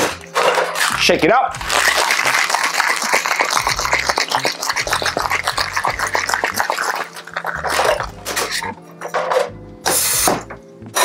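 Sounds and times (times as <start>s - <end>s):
ice rattling in cocktail shaker: 1.6s - 8.6s.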